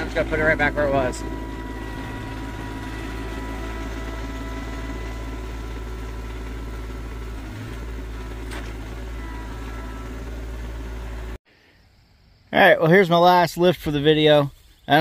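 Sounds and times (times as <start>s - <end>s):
thin steady whine: 0.0s - 7.0s
tractor diesel engine running: 0.0s - 11.4s.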